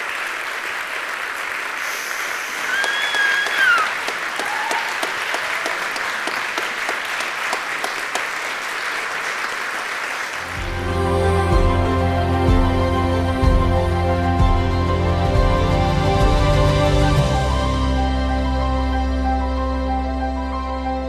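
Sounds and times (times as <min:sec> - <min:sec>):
audience applauding: 0:00.0 - 0:11.0
high cheer: 0:01.9 - 0:09.2.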